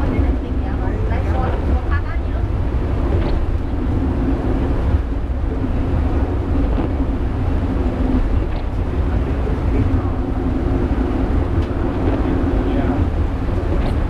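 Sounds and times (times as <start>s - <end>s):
steady hum: 0.0s - 14.0s
wheels rumbling on track: 0.0s - 14.0s.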